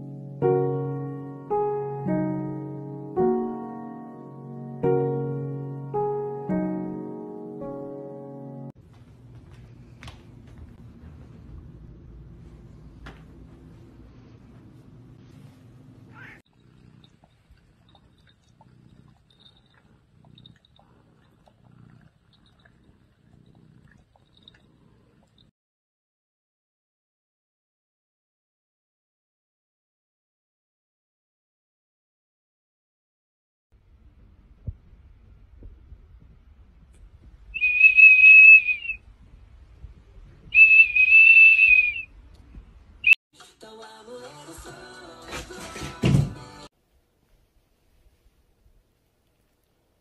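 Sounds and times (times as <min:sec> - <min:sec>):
cat purring: 0:16.1 - 0:25.5
dog blowing plastic whistle: 0:37.6 - 0:39.0, 0:40.5 - 0:42.1.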